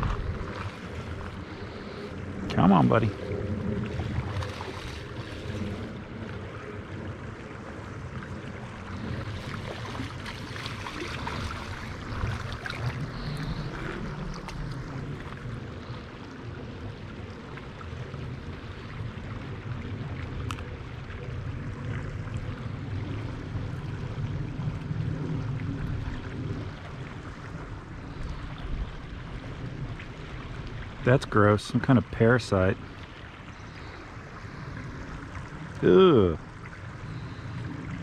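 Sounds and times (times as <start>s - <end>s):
low rumble: 0.0s - 31.1s
creek running over gravel: 0.0s - 38.0s.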